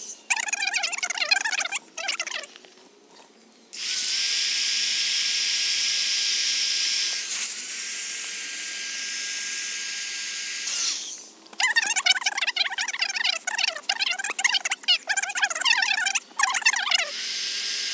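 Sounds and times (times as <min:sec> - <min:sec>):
electric air pump whining: 0:03.8 - 0:11.3.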